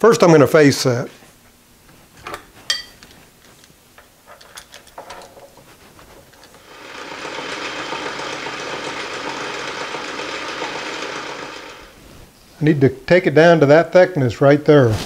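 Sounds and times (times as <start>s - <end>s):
metal lathe machining: 6.6s - 12.0s.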